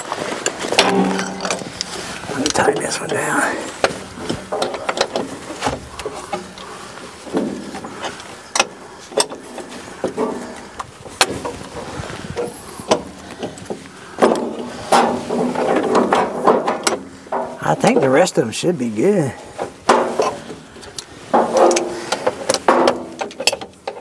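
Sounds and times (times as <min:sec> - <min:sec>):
hand tools clicking and knocking metal: 0:00.0 - 0:11.8, 0:12.4 - 0:18.2, 0:19.5 - 0:24.0.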